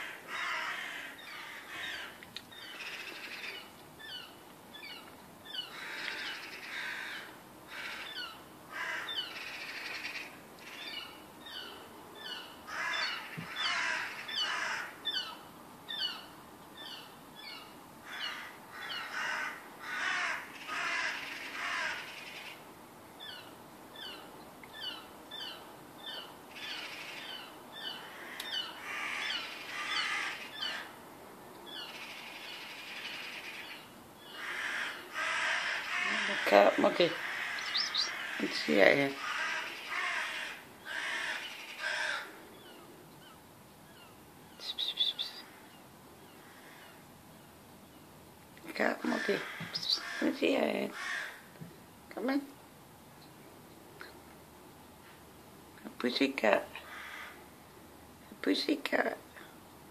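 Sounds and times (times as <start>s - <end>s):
harsh cawing bird chatter: 0.0s - 4.2s, 4.8s - 16.2s, 18.0s - 22.6s, 24.8s - 31.0s, 31.7s - 42.8s, 46.3s - 47.0s, 49.0s - 51.5s, 56.8s - 57.4s
high falling bird chirps: 37.5s - 38.4s, 42.6s - 47.0s.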